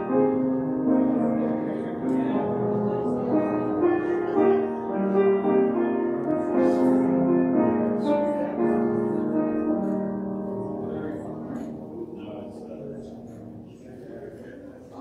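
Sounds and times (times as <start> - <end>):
slow keyboard melody over chords: 0.0 - 13.3.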